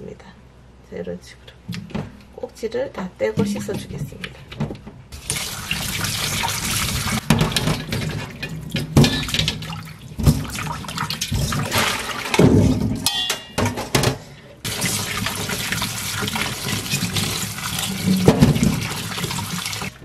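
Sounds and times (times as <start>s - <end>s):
tap water running into metal bowl: 5.2s - 12.5s, 14.7s - 20.0s
water splashes: 5.2s - 12.8s, 14.6s - 20.0s.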